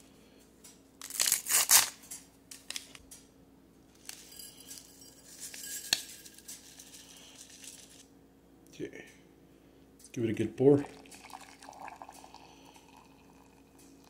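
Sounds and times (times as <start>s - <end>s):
packaging crinkling and rustling: 1.0s - 3.0s.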